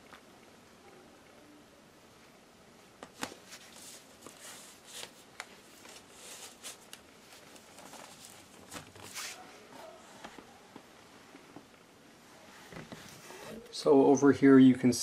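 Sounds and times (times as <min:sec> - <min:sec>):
soft rustles: 0:03.0 - 0:13.8.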